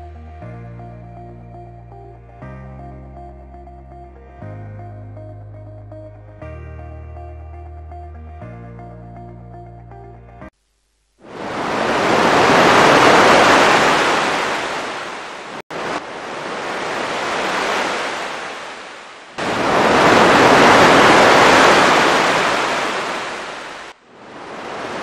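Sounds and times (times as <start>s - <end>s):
ocean surf breaking on beach: 11.2s - 25.0s.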